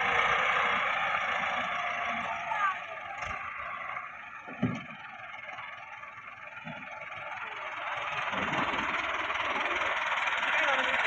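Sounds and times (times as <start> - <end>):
tractor diesel engine running: 0.0 - 11.0
thump: 4.5 - 4.9.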